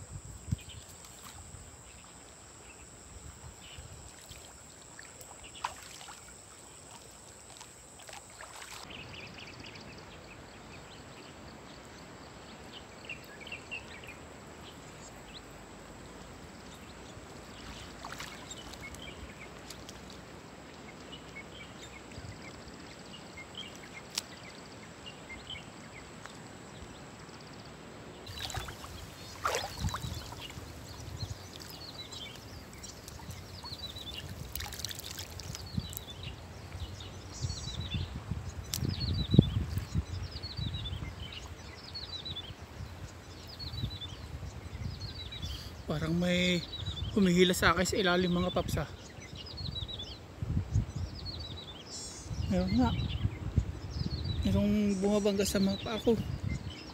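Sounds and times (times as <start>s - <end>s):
river water sloshing and lapping: 4.0s - 9.0s, 17.4s - 20.4s, 28.3s - 36.8s
net splashing in water: 4.1s - 8.9s, 17.7s - 18.8s, 28.3s - 30.9s, 34.0s - 35.6s.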